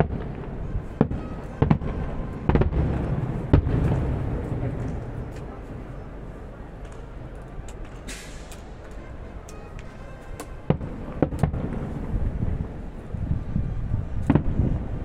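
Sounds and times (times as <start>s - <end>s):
fireworks sharp bangs: 0.0s - 5.7s, 7.8s - 15.0s
low rumble and crackle of shells: 2.5s - 5.7s.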